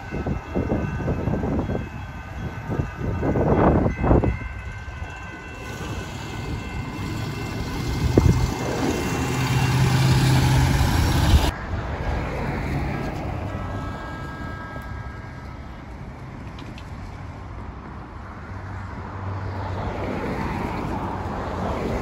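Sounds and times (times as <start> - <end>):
road noise: 0.0 - 22.0
wind: 0.0 - 22.0
train horn blasts: 13.5 - 15.7.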